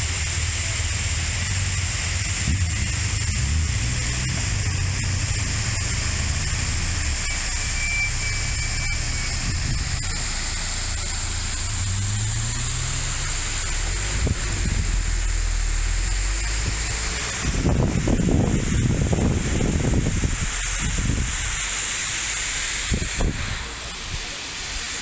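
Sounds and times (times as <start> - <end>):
waterfall rushing: 0.0 - 25.0
cars passing: 1.5 - 20.4.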